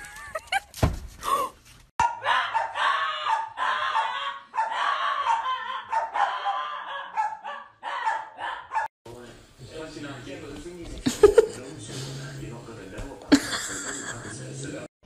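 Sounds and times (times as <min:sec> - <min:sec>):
thump: 0:00.8 - 0:01.2
dog howling: 0:02.0 - 0:08.9.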